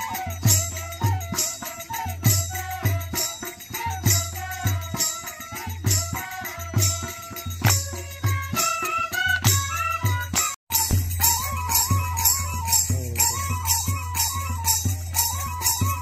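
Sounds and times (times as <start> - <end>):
barrel drum beating: 10.7 - 16.0
jingling: 10.7 - 16.0
wavering melody: 10.7 - 16.0.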